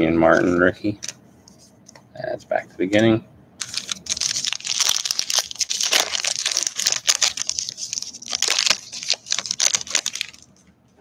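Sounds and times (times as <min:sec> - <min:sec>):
foil wrapper crinkling: 0:03.6 - 0:10.6.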